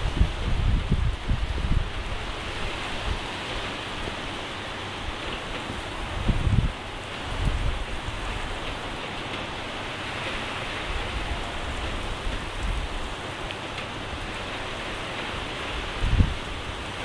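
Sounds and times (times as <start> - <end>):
rain on a wet road: 0.0 - 17.0.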